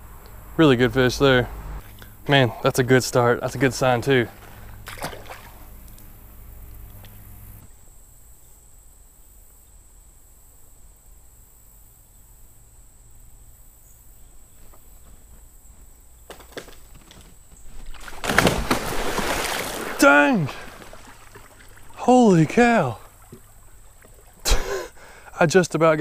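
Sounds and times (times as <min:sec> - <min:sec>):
high insect drone: 0:00.0 - 0:26.0
log splashing into creek: 0:03.4 - 0:06.2, 0:16.2 - 0:24.9
faint cracks: 0:14.6 - 0:19.9.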